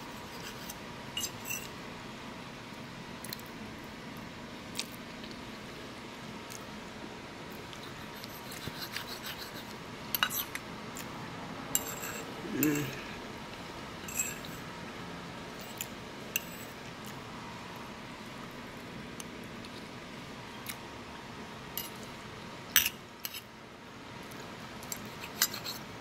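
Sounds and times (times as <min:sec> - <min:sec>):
fork scraping ceramic plate: 0:00.1 - 0:01.7, 0:07.8 - 0:10.6, 0:11.8 - 0:13.0, 0:14.0 - 0:14.6, 0:15.6 - 0:16.7, 0:25.0 - 0:25.8
person humming: 0:12.4 - 0:13.2.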